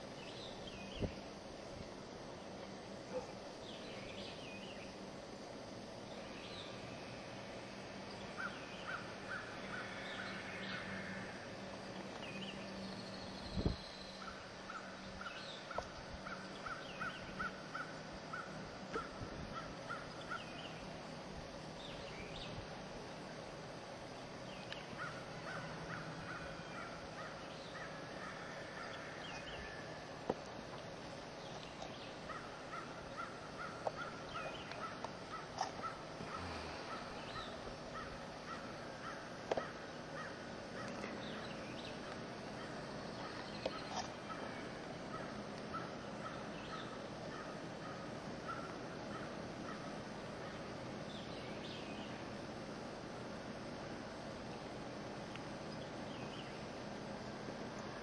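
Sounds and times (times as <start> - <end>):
low steady hum: 0.0 - 58.0
birds chirping: 8.0 - 21.0, 24.2 - 30.0, 30.9 - 52.3.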